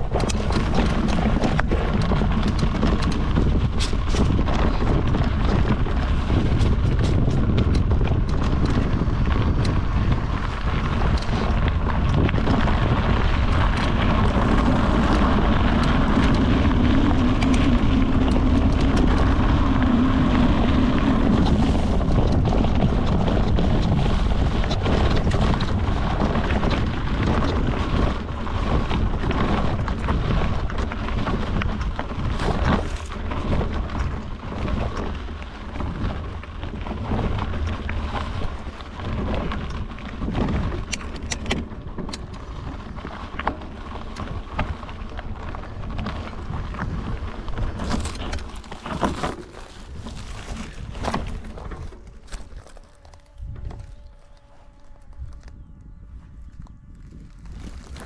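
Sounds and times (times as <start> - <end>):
bike clicks and rattles: 0.0 - 58.0
low tyre hum on gravel: 0.0 - 58.0
tyres rumbling over stones: 0.0 - 58.0
wind rushing over microphone: 0.0 - 58.0.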